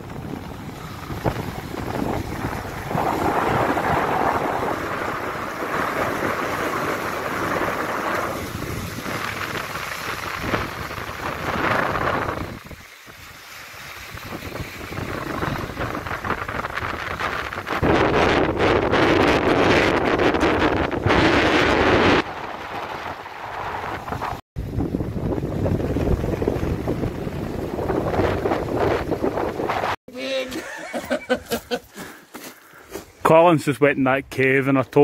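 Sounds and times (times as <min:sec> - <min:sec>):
waves breaking on rocky shore: 0:00.0 - 0:24.4
wind buffeting microphone: 0:00.0 - 0:30.0.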